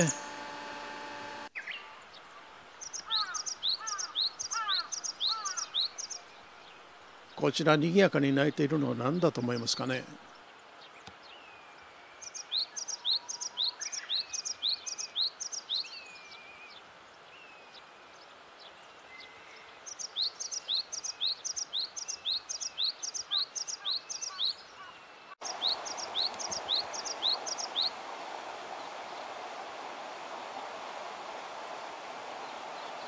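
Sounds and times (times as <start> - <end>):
bird singing two-note song: 0.0 - 1.8
faint down-slurred bird calls: 1.6 - 6.3, 18.6 - 28.0.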